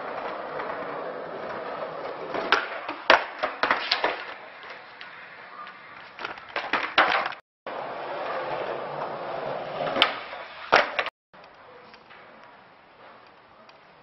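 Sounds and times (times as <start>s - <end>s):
skateboard clattering on ground: 0.0s - 7.4s, 8.0s - 11.1s
skateboard wheels rolling on asphalt: 0.0s - 11.1s.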